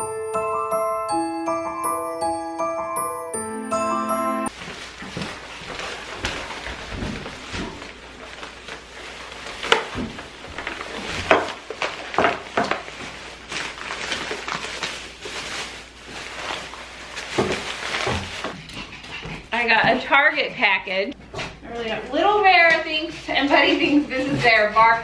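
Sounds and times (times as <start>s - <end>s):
plastic bags rustling: 4.5s - 18.7s.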